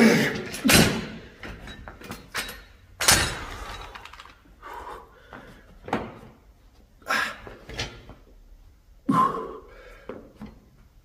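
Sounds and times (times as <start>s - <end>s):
person groaning: 9.1s - 9.7s.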